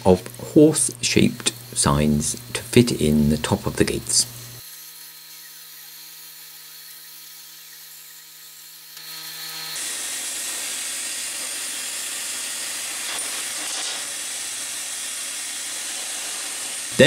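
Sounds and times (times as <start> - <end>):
plasma cutter hum: 0.0 - 17.0
plasma cutter hiss: 9.8 - 17.0.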